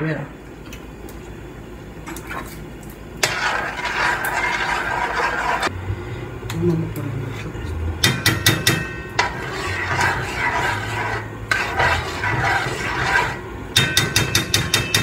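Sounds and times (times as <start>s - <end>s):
utensils scraping dishes: 3.2s - 5.7s, 7.2s - 15.0s.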